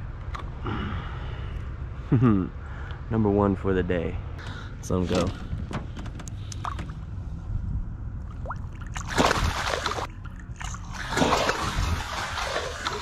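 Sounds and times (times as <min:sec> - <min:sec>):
fish splashing in water: 0:08.3 - 0:13.0.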